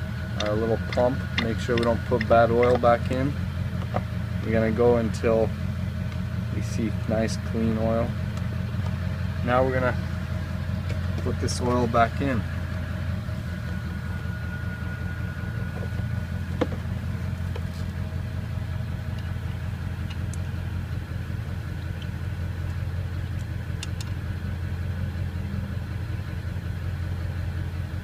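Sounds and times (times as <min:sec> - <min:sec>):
low engine hum: 0:00.0 - 0:28.0
metal probe clicking: 0:00.4 - 0:03.2.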